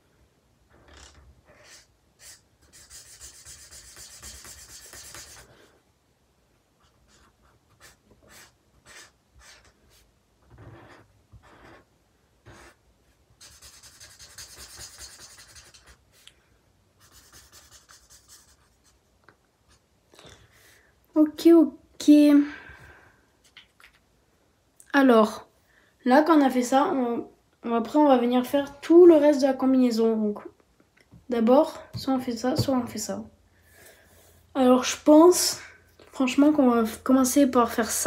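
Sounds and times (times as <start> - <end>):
marker scratching on paper: 1.0 - 5.6, 6.8 - 16.2, 17.0 - 19.0.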